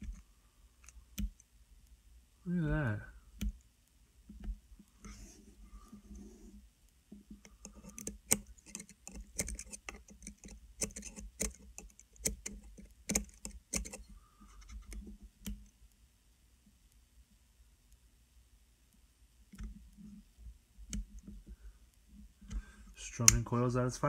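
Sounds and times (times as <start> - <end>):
tweezers tapping coil: 0.8 - 1.5.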